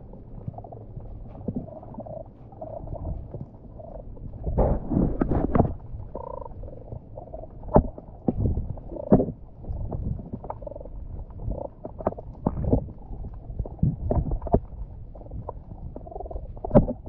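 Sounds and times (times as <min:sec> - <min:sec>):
underwater gurgles: 0:00.0 - 0:17.0
sharp knocks underwater: 0:04.4 - 0:06.4, 0:07.6 - 0:10.6, 0:16.6 - 0:17.0.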